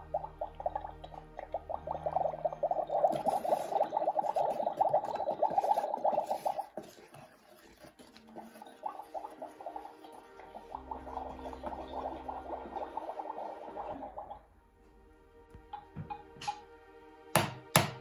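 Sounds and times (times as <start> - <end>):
electronic bubbling sound effect: 0.0 - 6.8, 8.4 - 14.5.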